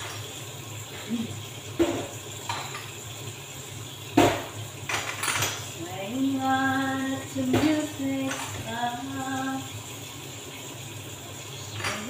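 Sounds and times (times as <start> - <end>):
dish clinking: 1.8 - 3.0, 4.2 - 5.8, 7.3 - 9.0, 11.6 - 12.0
woman singing slow tune: 5.8 - 9.8.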